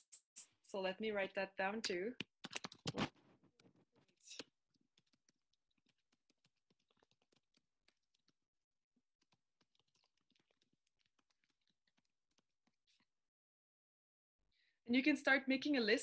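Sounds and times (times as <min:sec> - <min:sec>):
faint keyboard typing: 0:03.6 - 0:13.1.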